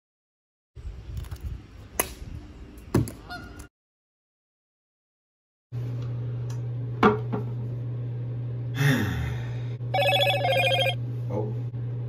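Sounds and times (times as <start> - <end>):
steady low hum: 5.8 - 12.0
telephone ringing: 9.9 - 11.0.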